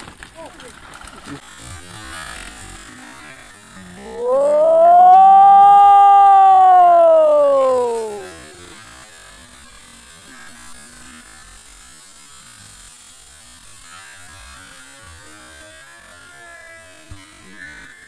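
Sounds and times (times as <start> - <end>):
low hum: 3.8 - 8.8.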